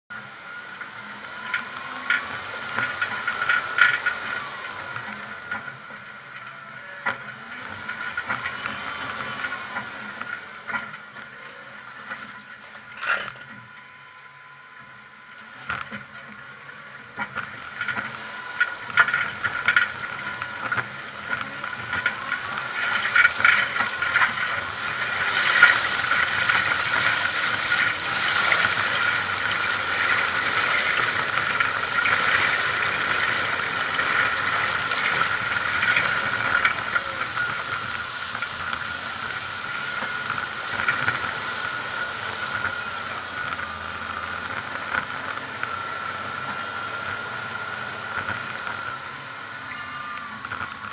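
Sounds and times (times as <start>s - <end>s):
vehicle engine: 0.0s - 50.9s
vehicle rattling over river stones: 0.1s - 13.7s, 15.3s - 50.9s
water rushing and splashing: 17.2s - 50.9s.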